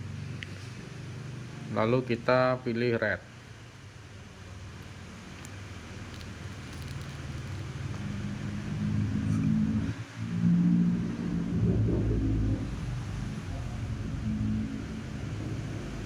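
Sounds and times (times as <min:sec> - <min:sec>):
vehicle engine running: 0:05.9 - 0:16.0.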